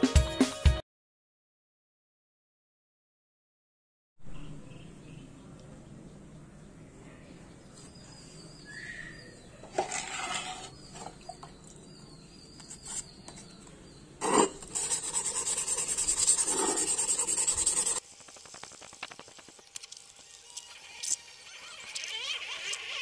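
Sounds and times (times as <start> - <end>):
sandpaper scraping metal: 9.8 - 10.8, 14.2 - 23.0.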